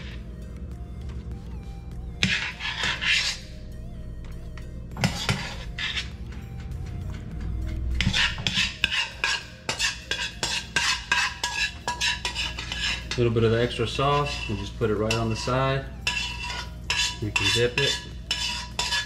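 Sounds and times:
low hum: 0:00.0 - 0:09.7
metal tongs clinking on a pan: 0:16.0 - 0:19.0.

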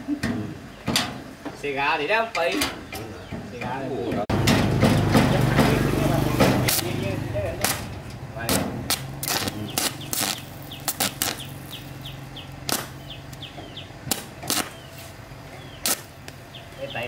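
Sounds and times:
knocks on threshing machine: 0:04.3 - 0:07.0.

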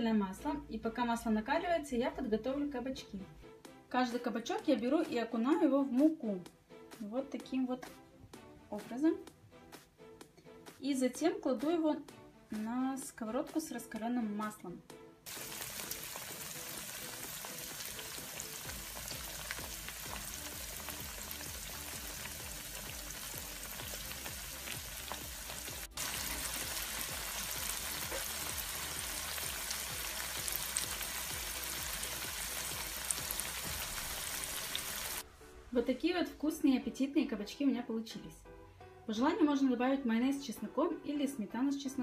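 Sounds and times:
vegetables sizzling in oil: 0:15.3 - 0:35.2.

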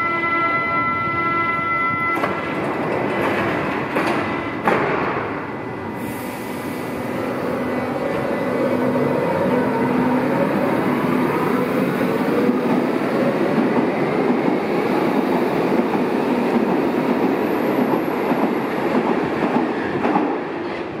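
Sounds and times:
train wheels clattering on rails: 0:02.1 - 0:05.5, 0:12.2 - 0:21.0.

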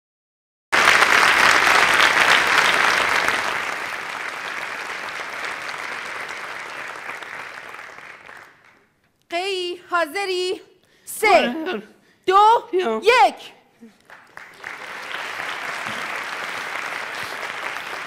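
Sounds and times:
audience applauding: 0:00.7 - 0:09.0, 0:13.8 - 0:18.0.

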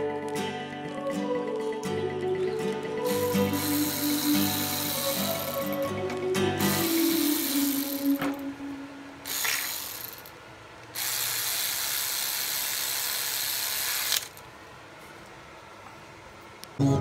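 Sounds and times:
powered ratchet running: 0:03.1 - 0:05.8, 0:06.8 - 0:08.2, 0:09.3 - 0:14.4.

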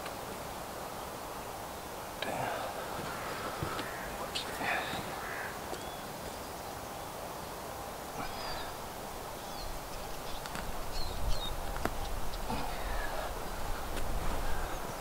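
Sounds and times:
bird chirps: 0:03.2 - 0:06.6.

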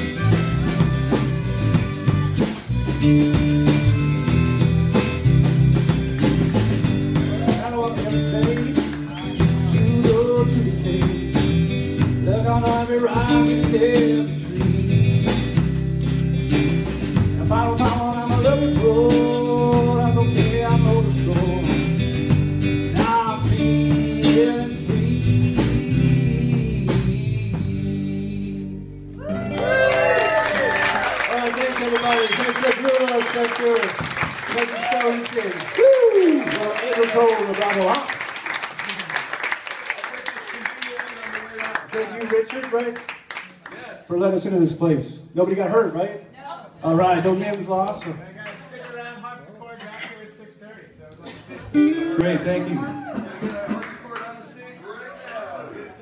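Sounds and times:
harmonica: 0:00.0 - 0:06.2
drum kit: 0:00.0 - 0:28.4, 0:29.2 - 0:38.0
electric bass: 0:00.0 - 0:31.2.

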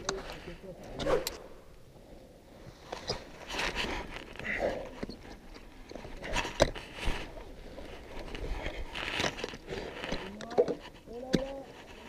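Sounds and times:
gloves and boots scraping rock: 0:02.7 - 0:12.0.

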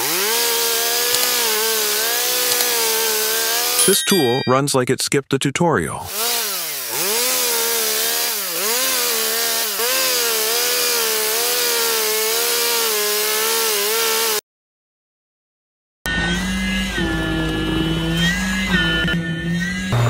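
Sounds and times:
chainsaw cutting log: 0:00.0 - 0:03.9, 0:06.1 - 0:14.4, 0:16.1 - 0:20.0.

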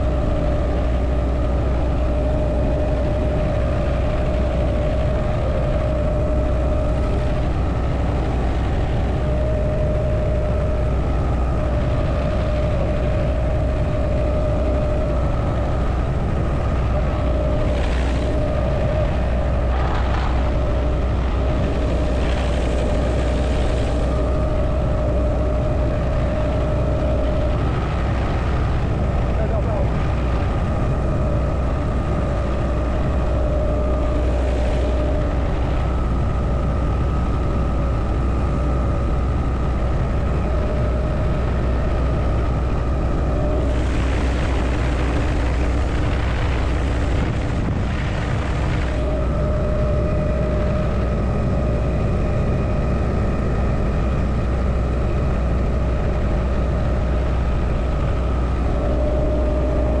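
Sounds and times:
engine and gearbox whine: 0:00.0 - 1:00.0
helicopter rotor drone: 0:00.0 - 1:00.0.

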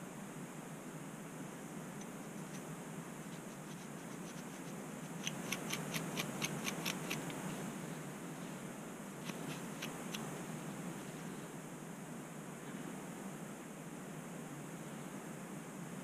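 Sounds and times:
steady hiss: 0:00.0 - 0:16.0
sharp scratchy ticks: 0:02.0 - 0:07.5, 0:09.2 - 0:10.3
scratching scalp through hair: 0:02.3 - 0:07.7, 0:09.2 - 0:10.4.

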